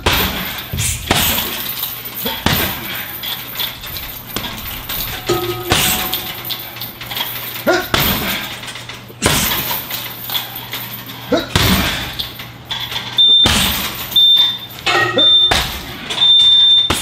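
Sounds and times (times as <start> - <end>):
kicks thudding on punching bag: 0.0 - 3.2, 4.0 - 6.4, 7.7 - 8.5, 9.2 - 9.8, 11.4 - 12.2, 13.4 - 14.2, 15.2 - 16.0
high electronic beeps: 14.2 - 15.6.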